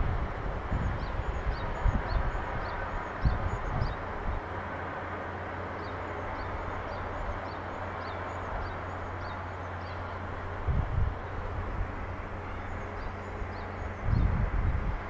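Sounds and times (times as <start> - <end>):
distant city hiss and hum: 0.0 - 15.0.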